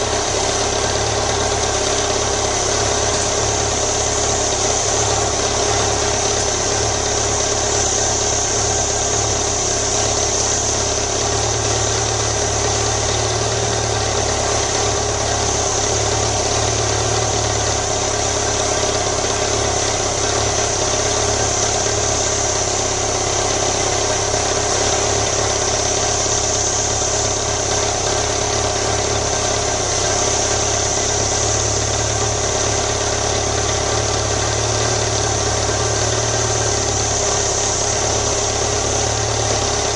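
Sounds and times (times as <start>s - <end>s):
motorcycle engine idling: 0.0s - 39.9s.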